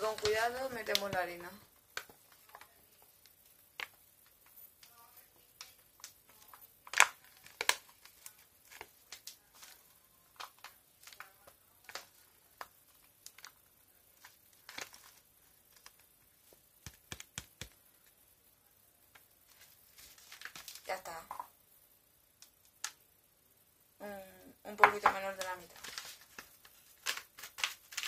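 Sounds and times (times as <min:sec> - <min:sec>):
paper bag crinkling: 0:14.2 - 0:16.0, 0:19.5 - 0:21.0, 0:24.8 - 0:28.0.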